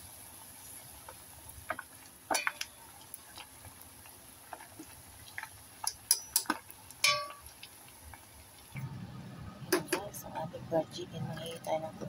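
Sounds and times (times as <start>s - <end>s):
chicken frying in hot oil: 0.0s - 8.8s
oil crackling and popping: 0.0s - 8.8s.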